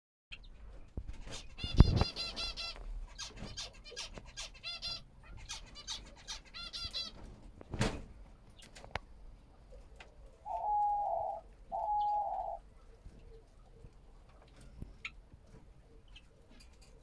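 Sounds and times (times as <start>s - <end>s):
finches chirping and twittering: 0.3s - 7.2s.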